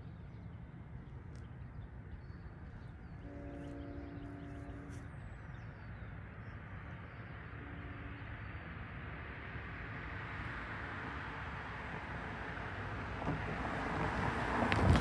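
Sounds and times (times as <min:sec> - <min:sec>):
distant train horn: 0:03.2 - 0:05.2, 0:07.4 - 0:08.6.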